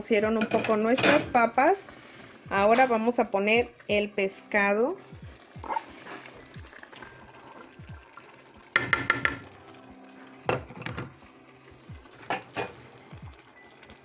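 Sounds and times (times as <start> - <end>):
metal bowl knocking on metal: 8.8 - 9.6.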